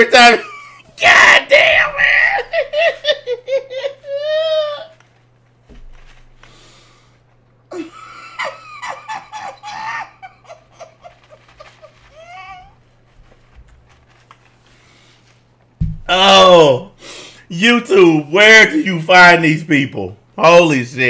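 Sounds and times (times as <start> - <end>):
man laughing hard: 0.1 - 5.0, 7.7 - 12.7.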